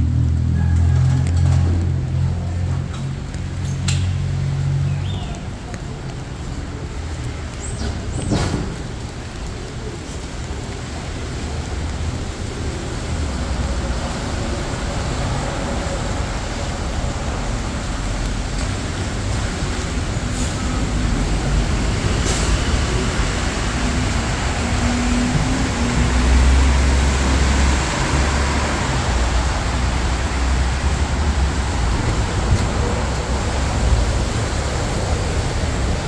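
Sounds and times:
street traffic rumble: 0:00.0 - 0:36.0.

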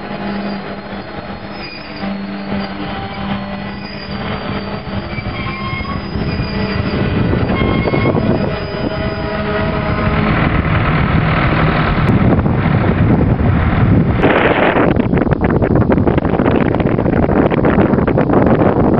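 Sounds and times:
train wheels squealing on rails: 0:00.0 - 0:10.5
rumble of train wheels on track: 0:00.0 - 0:18.9.

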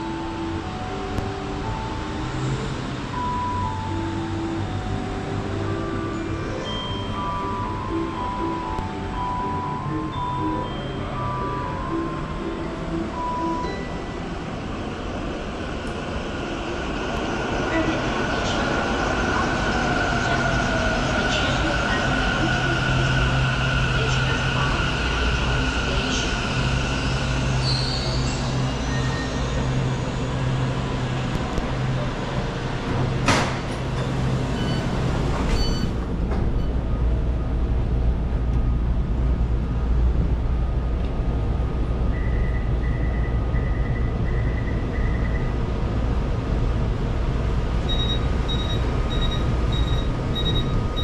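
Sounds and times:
train equipment humming: 0:00.0 - 0:51.0
rapid high door warning beeps: 0:34.0 - 0:36.0, 0:47.9 - 0:51.0
short beeps: 0:47.9 - 0:51.0.

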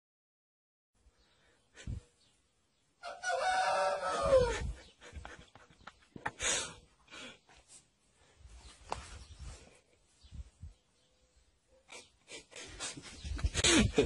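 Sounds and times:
rustling: 0:07.5 - 0:10.6.

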